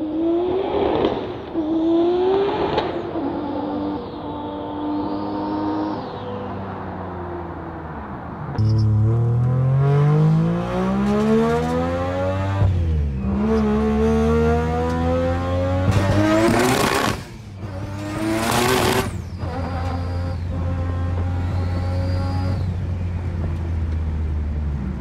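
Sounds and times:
rotary engine accelerating: 8.6s - 22.8s.

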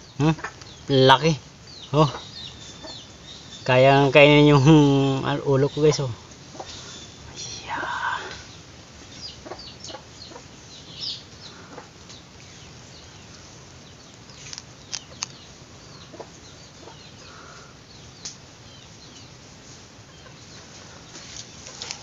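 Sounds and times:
chickens clucking: 0.0s - 22.0s
low background hum: 0.0s - 22.0s
sharp clicks: 14.2s - 15.4s.

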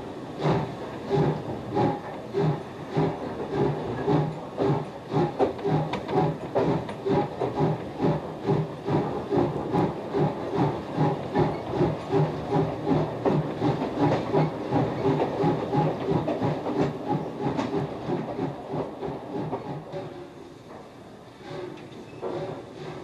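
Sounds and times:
steam locomotive exhaust chuffs: 0.0s - 23.0s
steam hissing: 0.2s - 18.5s.

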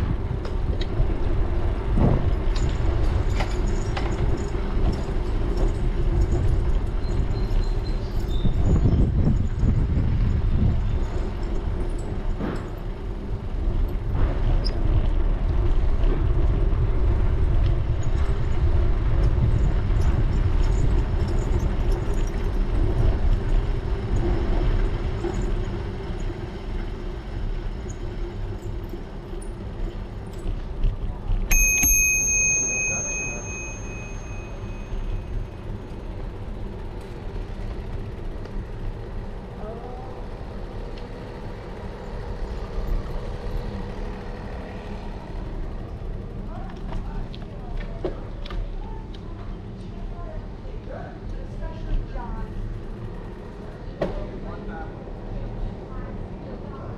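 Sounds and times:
road rumble: 0.0s - 56.9s
wind on microphone: 8.2s - 11.1s
bicycle bell ringing: 31.5s - 35.8s.

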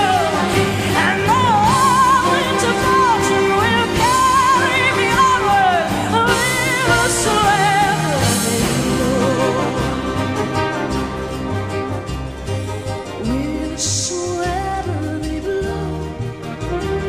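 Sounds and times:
woman singing with vibrato: 0.0s - 11.7s, 13.1s - 17.0s
orchestra: 0.0s - 17.0s.

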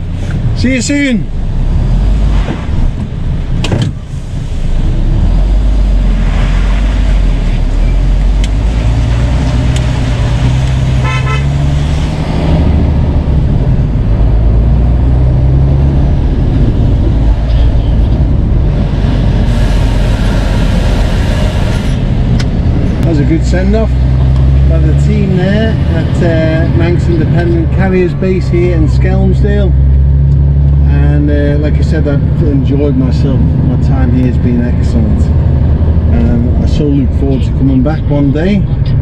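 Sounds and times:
short horn toot: 11.0s - 11.6s.

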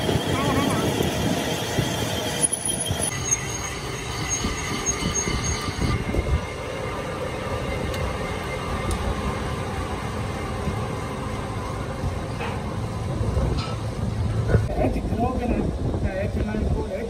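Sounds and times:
high-pitched cutting whine: 0.0s - 13.4s
metal lathe rumble: 0.0s - 14.4s.

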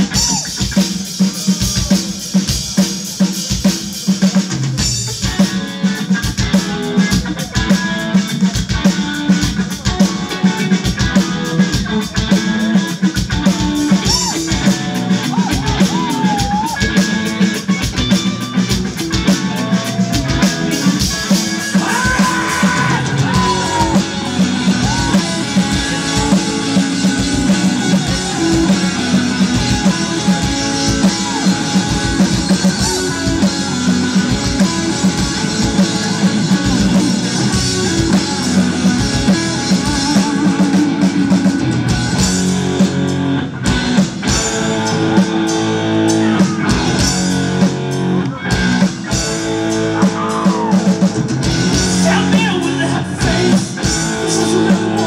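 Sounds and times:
live rock band playing: 0.0s - 55.0s
person singing: 19.5s - 41.7s, 52.0s - 55.0s.

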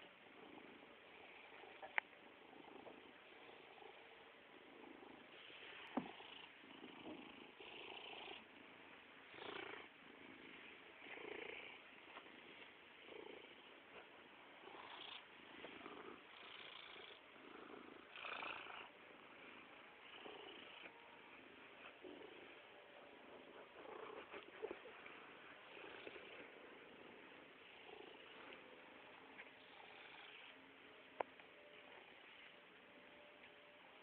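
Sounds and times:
cat purring: 0.0s - 32.6s.

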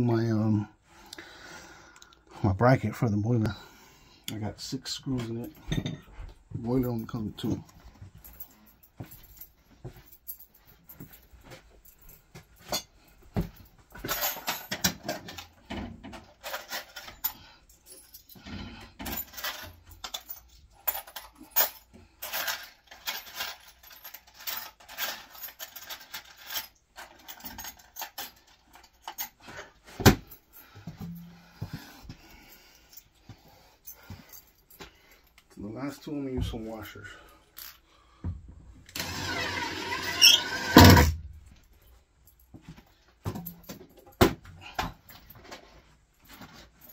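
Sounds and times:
screws and washers clinking: 5.1s - 31.4s, 38.9s - 42.5s.

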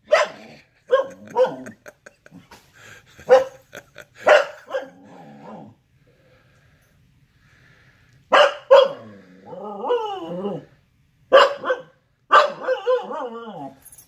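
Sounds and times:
dog barking: 0.0s - 1.7s, 3.2s - 3.6s, 4.2s - 5.0s, 8.3s - 9.2s, 11.3s - 13.7s
dog grumbling: 4.8s - 5.8s.

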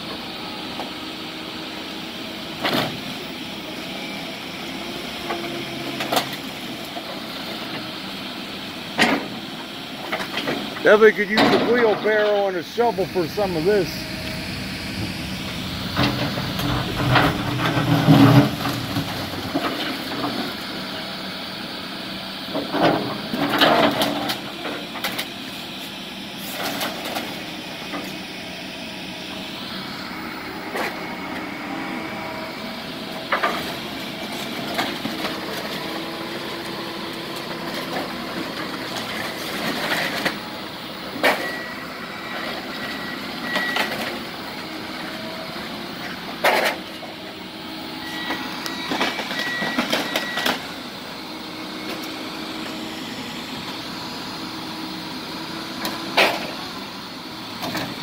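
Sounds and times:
demolition machinery running: 0.0s - 58.0s
debris clattering and crashing: 16.0s - 19.9s.

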